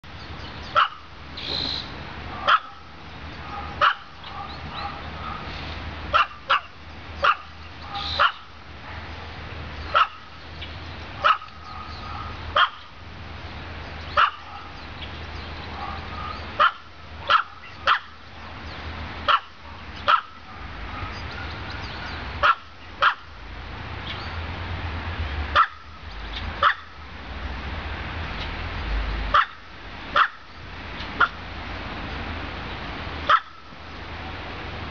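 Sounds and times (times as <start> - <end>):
small dog barking: 0.8 - 1.1, 2.3 - 5.5, 6.1 - 9.0, 9.9 - 10.3, 11.2 - 12.9, 14.2 - 14.8, 15.7 - 18.2, 19.3 - 21.6, 22.4 - 23.3, 25.6 - 25.8, 26.6 - 26.9, 29.3 - 29.6, 30.2 - 30.4, 33.3 - 33.6.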